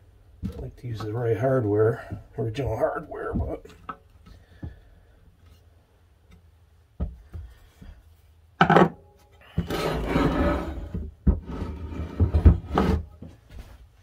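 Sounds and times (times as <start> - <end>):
metal scraping on wood: 9.4 - 13.2.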